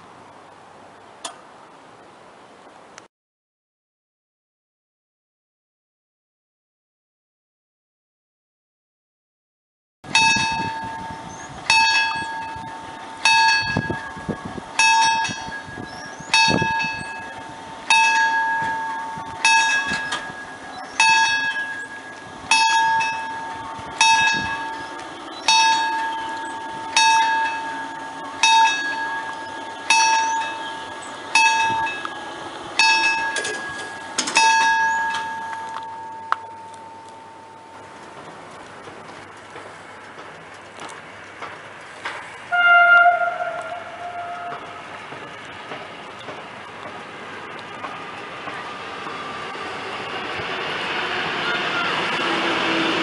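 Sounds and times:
level crossing warning bell: 10.1s - 38.5s.

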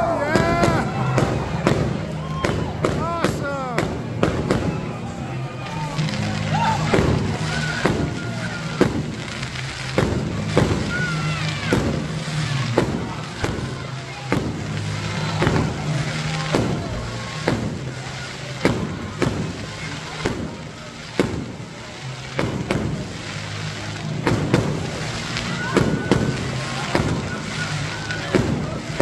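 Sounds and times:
fireworks bangs and crackling: 0.0s - 29.0s.

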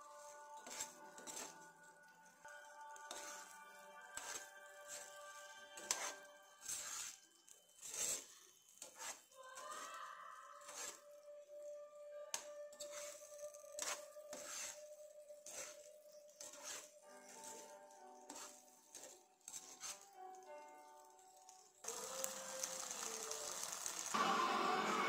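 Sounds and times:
metal spoon scraping frying pan: 0.1s - 11.3s, 12.4s - 20.2s.

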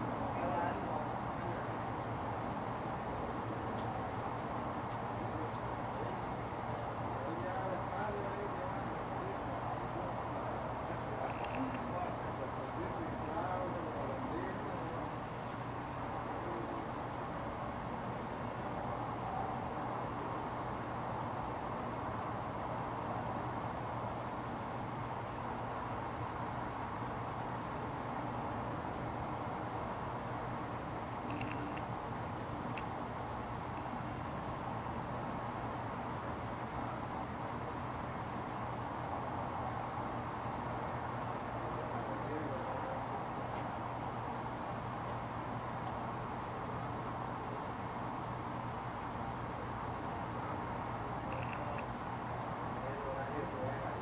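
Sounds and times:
insects chirping: 0.0s - 54.0s.

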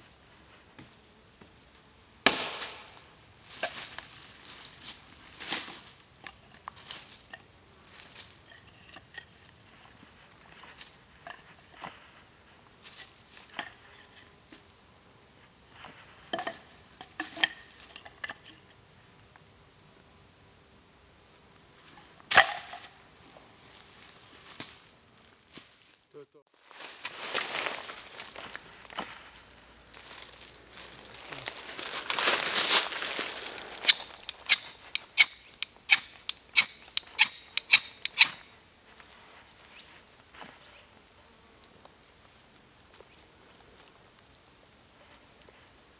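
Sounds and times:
wooden sticks clattering: 22.3s - 22.9s
knife scraping ferrocerium rod: 33.8s - 38.4s.

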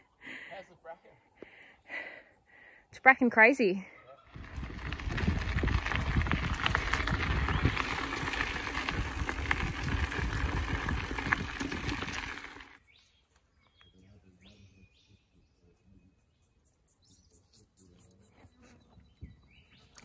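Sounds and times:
tyres on dirt: 4.2s - 12.8s
bike rattling over bumps: 4.3s - 12.8s
wind rumbling on microphone: 4.3s - 12.8s, 19.0s - 19.8s.

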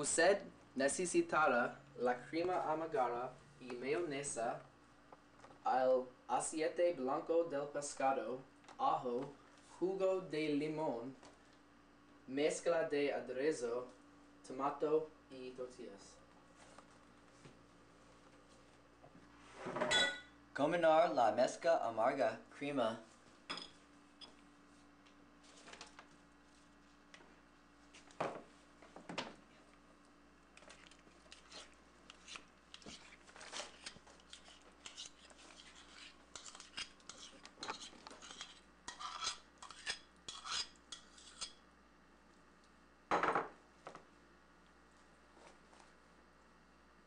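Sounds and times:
metal spoon scraping bowl: 31.3s - 41.6s.

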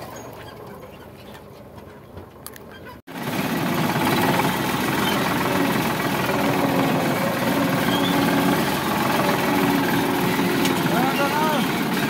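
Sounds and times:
tractor diesel engine running: 3.0s - 12.0s.

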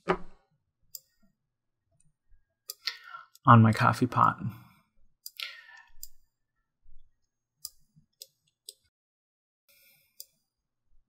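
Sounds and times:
computer mouse clicks: 5.2s - 6.2s.

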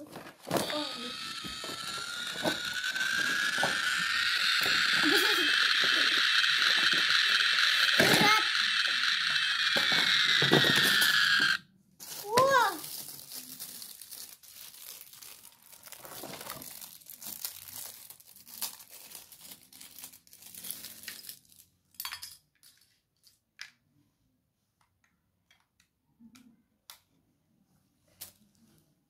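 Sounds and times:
plastic bag crinkling: 12.0s - 21.7s.

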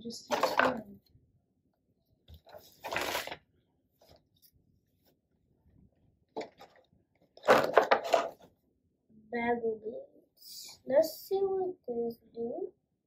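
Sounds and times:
plastic packaging crinkling: 2.4s - 3.4s, 7.4s - 8.4s.

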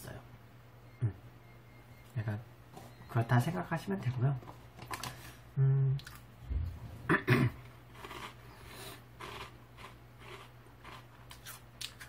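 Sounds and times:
faint low hum: 0.0s - 12.0s
man humming: 5.6s - 6.1s
soft low thump: 6.4s - 7.1s.

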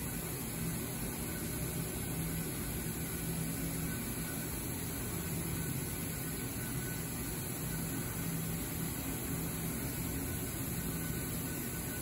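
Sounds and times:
cnc router running: 0.0s - 12.0s.

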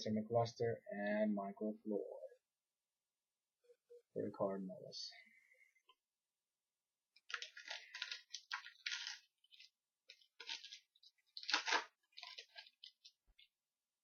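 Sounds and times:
wrapper tearing and crinkling: 7.3s - 13.5s.

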